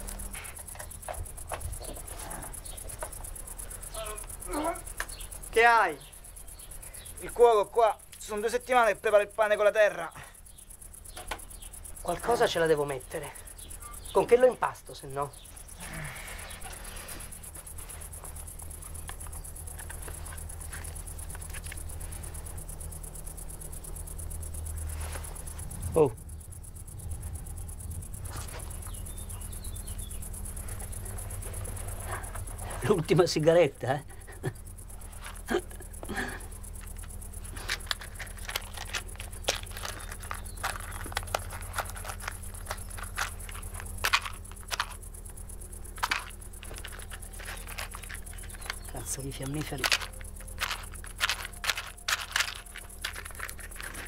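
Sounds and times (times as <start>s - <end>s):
insects chirring: 0.0s - 54.0s
steady low hum: 0.0s - 54.0s
hands fiddling with small object: 36.8s - 54.0s.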